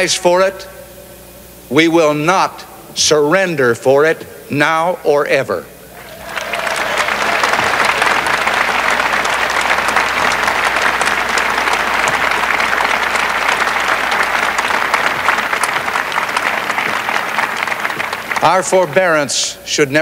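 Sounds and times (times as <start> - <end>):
crowd applauding: 6.0 - 19.3.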